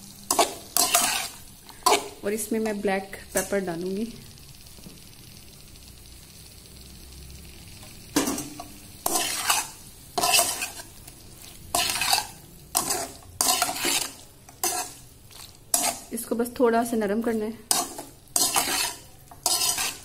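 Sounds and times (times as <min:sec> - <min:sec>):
food sizzling: 0:00.0 - 0:20.0
metal spatula scraping a wok: 0:00.3 - 0:03.6, 0:08.2 - 0:16.2, 0:17.6 - 0:20.0.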